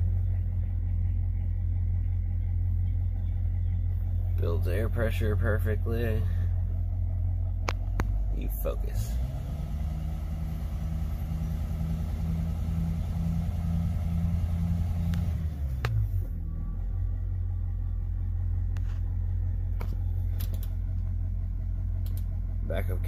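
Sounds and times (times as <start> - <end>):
engine idling: 0.0 - 23.0
dash button clicks: 19.8 - 20.8, 22.0 - 22.3.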